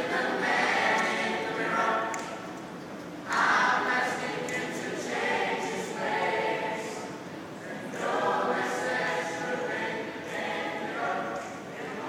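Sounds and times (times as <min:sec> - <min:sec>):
choir singing a cappella: 0:00.0 - 0:02.4, 0:03.3 - 0:12.0.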